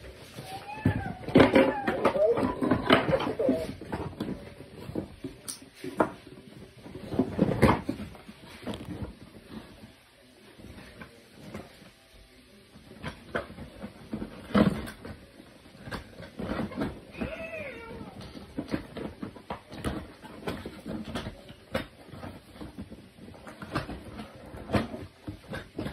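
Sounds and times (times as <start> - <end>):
plastic toys knocking and clattering: 0.0 - 9.8, 12.7 - 25.9.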